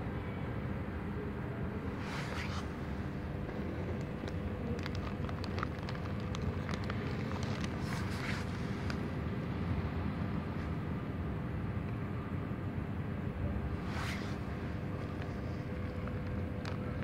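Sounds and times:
low background rumble: 0:01.6 - 0:11.7, 0:12.5 - 0:17.0
cat crunching dry kibble: 0:03.3 - 0:09.2, 0:14.9 - 0:17.0.

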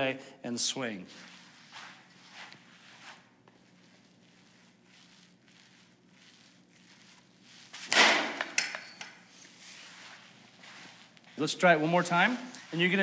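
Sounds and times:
low room hum: 0:00.0 - 0:13.0
faint shuffling: 0:00.8 - 0:07.9, 0:09.3 - 0:13.0
bat hitting softball: 0:07.9 - 0:08.8.

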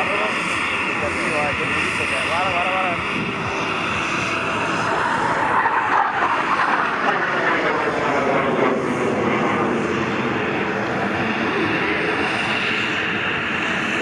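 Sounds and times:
jet engine roar passing overhead: 0:00.0 - 0:14.0.

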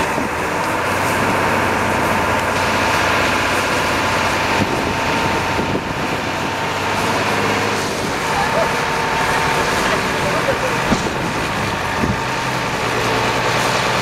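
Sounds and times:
minibus engine straining: 0:00.0 - 0:14.0.

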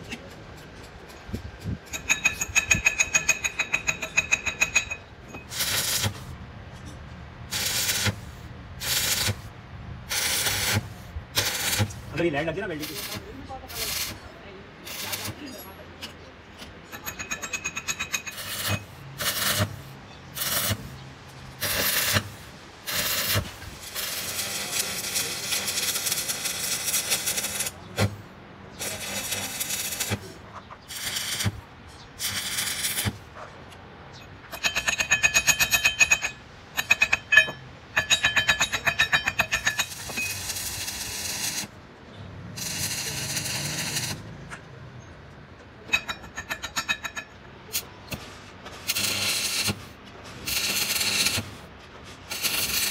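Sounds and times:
welding arc crackling and hissing: 0:05.5 - 0:06.4, 0:07.5 - 0:15.5, 0:18.2 - 0:28.2, 0:28.8 - 0:31.6, 0:32.2 - 0:33.2, 0:39.4 - 0:41.8, 0:42.6 - 0:44.2, 0:48.8 - 0:52.9.

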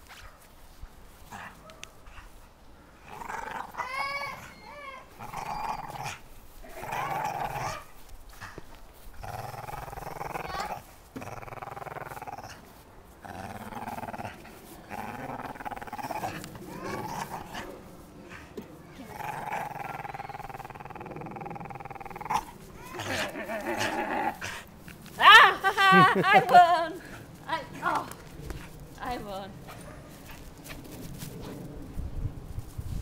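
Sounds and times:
dog growling: 0:03.0 - 0:07.9, 0:09.2 - 0:24.7.

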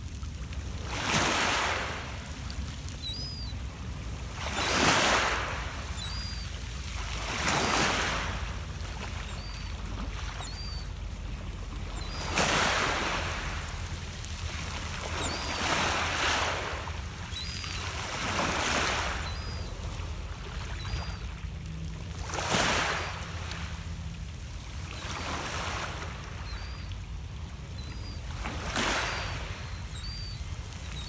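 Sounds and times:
waves washing on pebble beach: 0:00.0 - 0:09.6, 0:11.9 - 0:19.5, 0:27.8 - 0:29.7
birds chirping: 0:03.0 - 0:03.6, 0:04.5 - 0:06.6, 0:09.0 - 0:11.0, 0:11.6 - 0:12.8, 0:15.1 - 0:16.5, 0:17.3 - 0:21.4, 0:26.3 - 0:27.1, 0:27.7 - 0:31.0.

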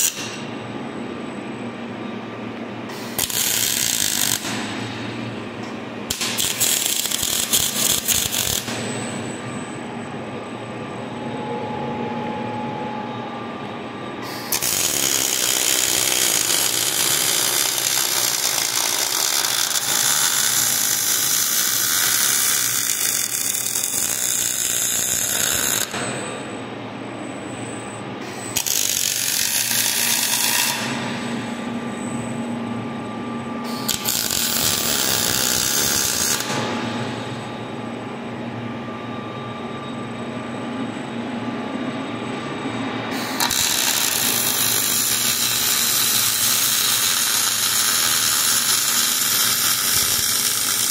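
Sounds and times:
machine hum: 0:00.0 - 0:50.9
welding arc crackling and hissing: 0:02.9 - 0:05.1, 0:06.1 - 0:08.8, 0:14.3 - 0:26.0, 0:28.5 - 0:30.9, 0:33.7 - 0:36.6, 0:43.2 - 0:50.9.

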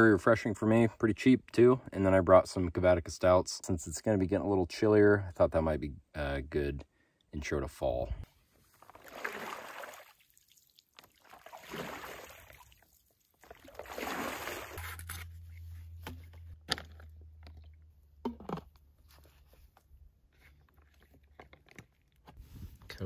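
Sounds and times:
water sloshing and gurgling: 0:08.6 - 0:14.9.

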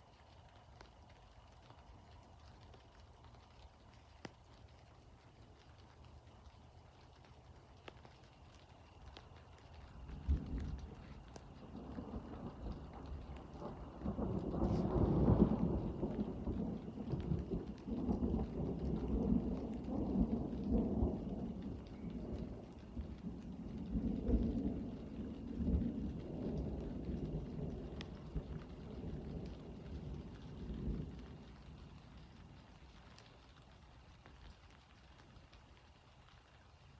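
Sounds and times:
rolling thunder: 0:10.0 - 0:33.2.

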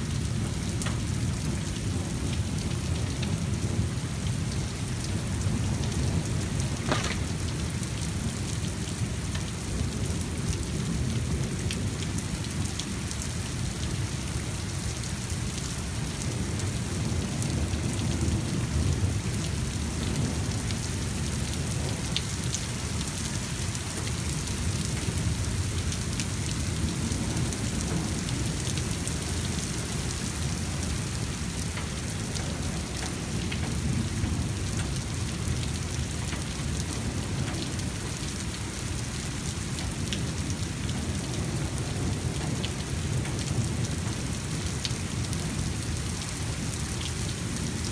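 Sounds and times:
rain on wet pavement: 0:00.0 - 0:47.9
thunder rumbling: 0:05.2 - 0:08.7.

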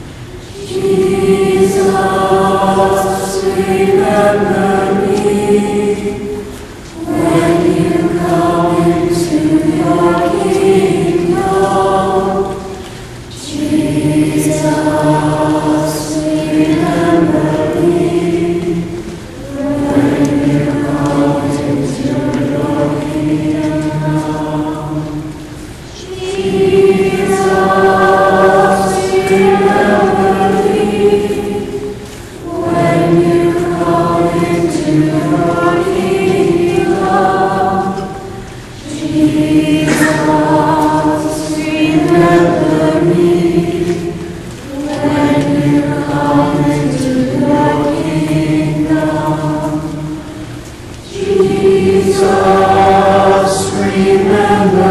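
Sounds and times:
group singing a hymn: 0:00.0 - 0:54.9.

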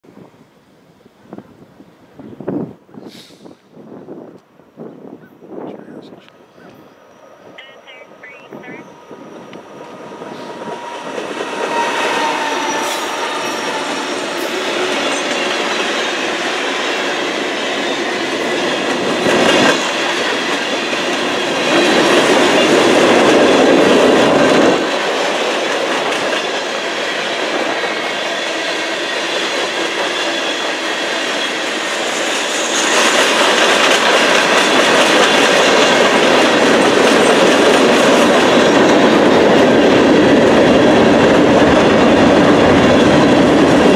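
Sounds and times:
diesel locomotives passing: 0:00.1 - 0:43.9
high wheel squeal: 0:10.2 - 0:16.4.

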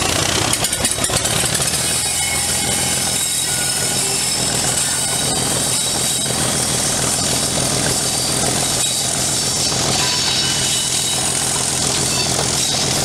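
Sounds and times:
diesel locomotive engine: 0:00.0 - 0:13.0.

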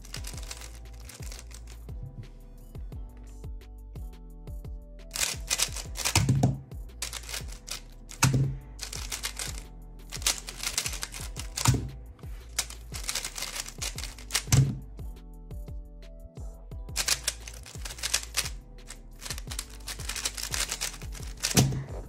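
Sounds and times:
puzzle cube clicking: 0:00.0 - 0:01.9, 0:05.1 - 0:14.8, 0:17.0 - 0:21.9
background music: 0:00.0 - 0:22.0
hands slapping timer pad: 0:05.1 - 0:15.0, 0:16.9 - 0:22.0.

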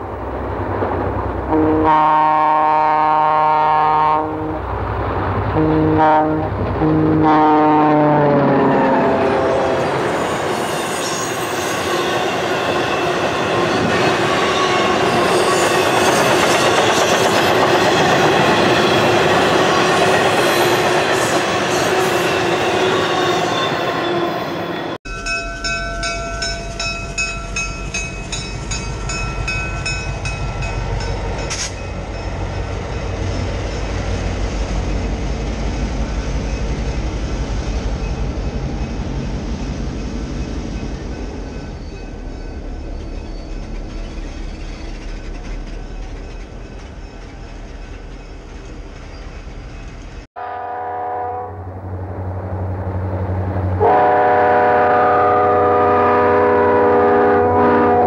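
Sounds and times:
train horn: 0:01.5 - 0:04.7, 0:05.5 - 0:16.4, 0:50.4 - 0:52.0, 0:53.7 - 0:58.0
train wheels rushing on rail: 0:04.5 - 0:07.3, 0:08.0 - 0:50.3.

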